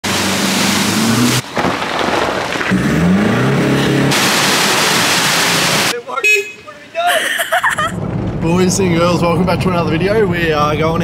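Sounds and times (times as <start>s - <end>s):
off-road vehicle engines revving: 0.0s - 1.4s, 2.6s - 5.9s
water splashing: 0.0s - 6.0s.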